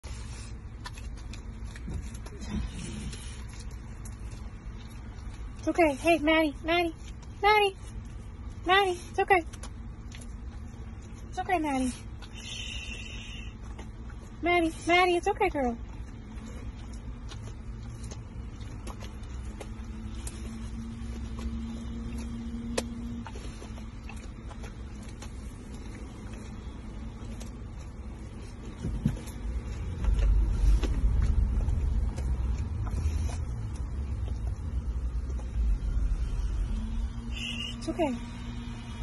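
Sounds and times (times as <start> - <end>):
car engine and road noise: 13.2 - 39.0.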